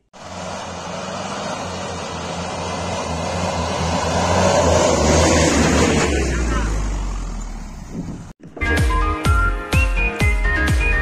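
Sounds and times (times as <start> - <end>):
vehicle engine approaching: 0.0 - 8.4.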